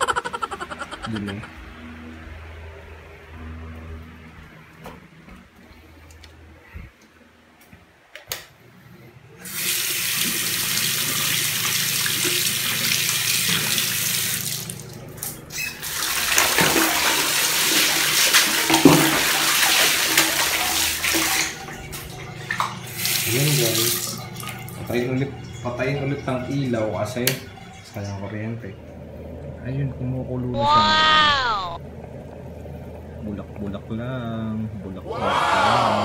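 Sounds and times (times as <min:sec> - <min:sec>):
tap running into sink: 0:18.4 - 0:19.4.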